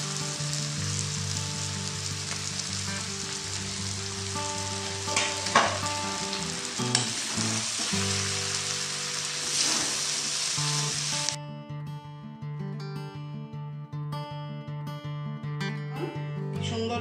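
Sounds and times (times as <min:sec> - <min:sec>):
noodles sizzling in a wok: 0:00.0 - 0:11.4.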